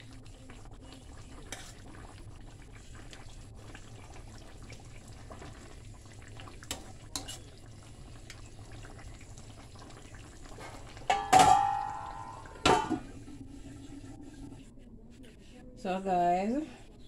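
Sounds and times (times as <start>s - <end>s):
ladle clinking against pan: 11.0s - 13.0s
loud metallic clang: 11.1s - 12.0s.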